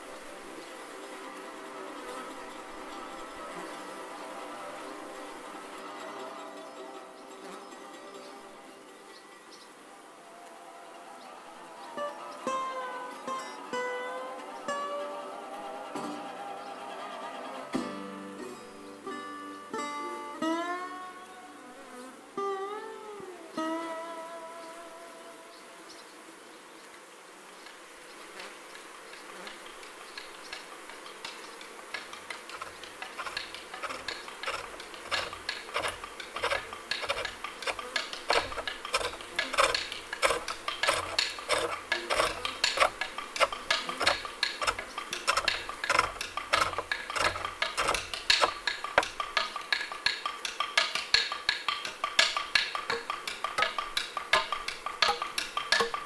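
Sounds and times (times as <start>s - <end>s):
gouge cutting wood on lathe: 32.0s - 56.0s.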